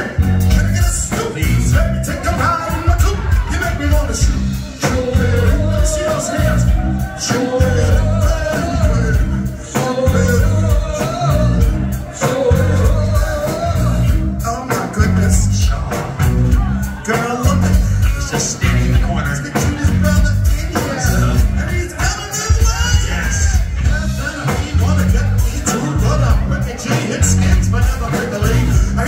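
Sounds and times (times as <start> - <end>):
bass guitar: 0.0 - 29.0
drum kit beat: 0.0 - 29.0
electric guitar: 0.0 - 29.0
men singing: 0.0 - 29.0.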